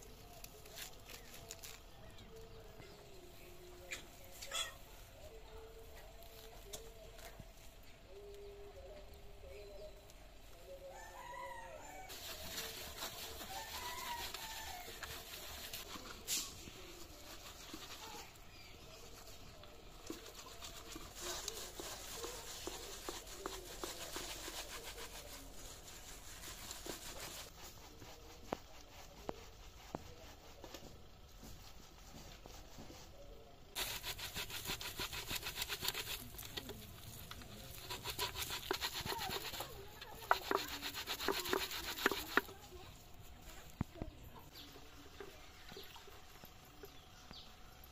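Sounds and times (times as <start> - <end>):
fruit rubbed against steel colander: 0.0 - 2.5, 11.9 - 43.7
chicken calling: 3.9 - 4.9.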